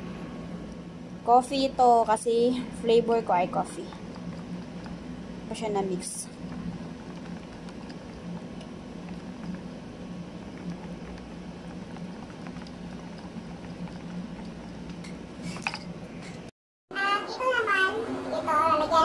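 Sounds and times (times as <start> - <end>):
steady low hum: 0.0 - 16.5.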